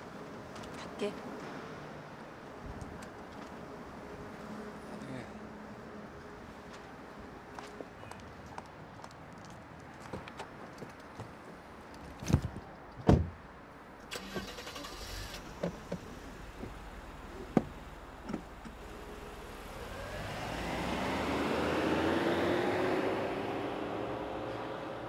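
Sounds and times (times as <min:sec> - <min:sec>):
car engine revving: 0:18.8 - 0:24.4.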